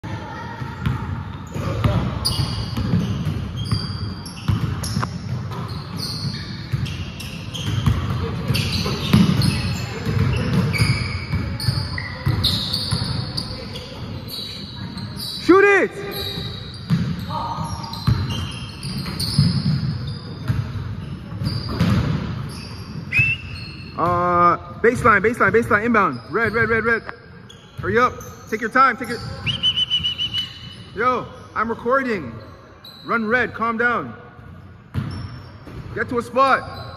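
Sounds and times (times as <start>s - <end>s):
sneakers squeaking on floor: 0.0s - 36.9s
basketball bouncing on hardwood: 7.6s - 13.1s.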